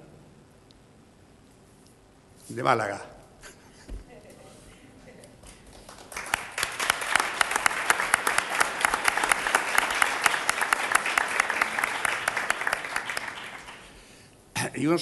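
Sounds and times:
audience applauding: 0:05.4 - 0:14.2.

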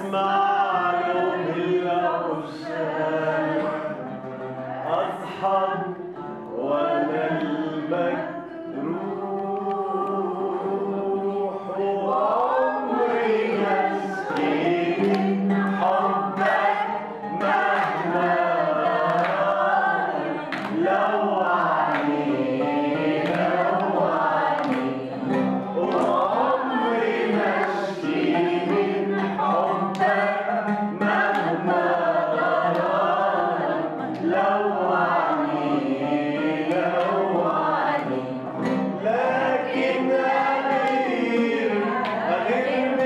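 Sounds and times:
women singing together: 0:00.0 - 0:43.0
handclaps: 0:14.3 - 0:19.6, 0:20.4 - 0:28.9, 0:29.9 - 0:30.4, 0:31.1 - 0:32.0, 0:32.6 - 0:33.0, 0:39.8 - 0:41.3.

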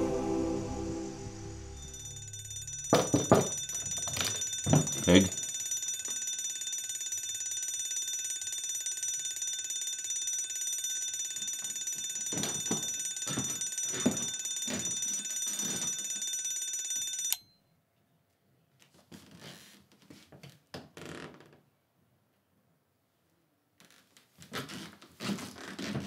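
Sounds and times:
bell ringing: 0:01.4 - 0:17.5.

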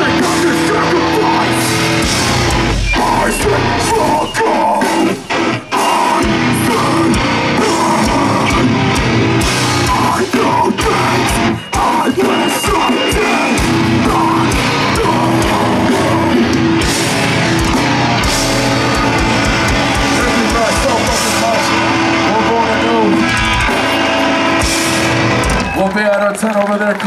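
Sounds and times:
pounding drums: 0:00.0 - 0:25.8
distorted guitars: 0:00.0 - 0:26.0
person shouting vocals: 0:09.9 - 0:16.5.

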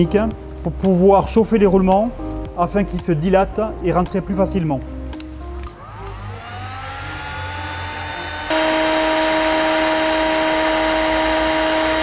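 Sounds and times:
heat gun blowing hum: 0:05.7 - 0:12.0.

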